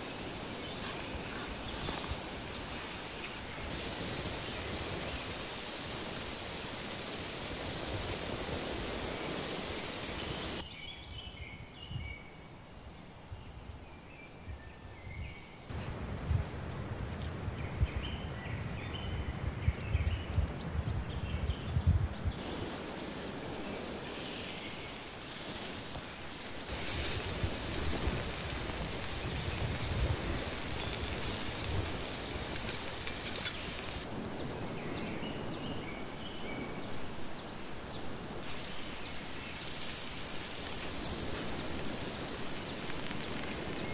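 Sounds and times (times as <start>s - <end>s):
meat sizzling and crackling: 0.0s - 10.6s, 22.4s - 34.1s, 37.6s - 43.9s
small birds chirping: 0.0s - 43.9s.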